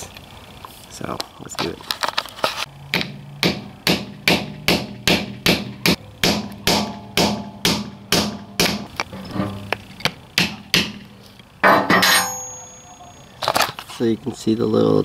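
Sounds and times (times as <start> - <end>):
hammer striking metal: 2.9 - 9.8, 10.4 - 13.1.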